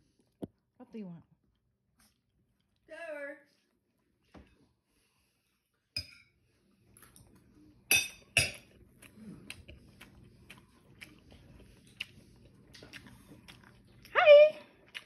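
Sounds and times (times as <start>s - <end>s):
cutlery clinking against a dish: 6.0s - 6.4s, 7.9s - 8.8s.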